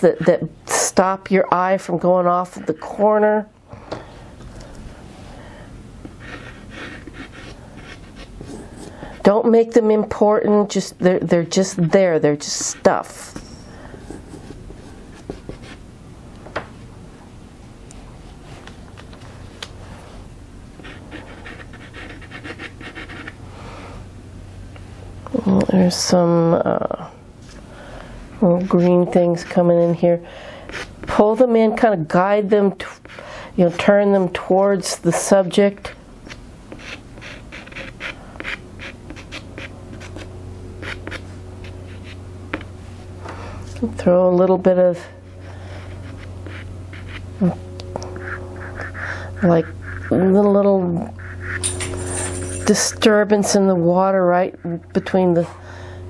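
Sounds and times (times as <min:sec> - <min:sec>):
pastel scratching on paper: 0:06.2 - 0:08.6, 0:20.8 - 0:23.4, 0:36.7 - 0:42.2, 0:45.8 - 0:47.2, 0:48.2 - 0:50.3.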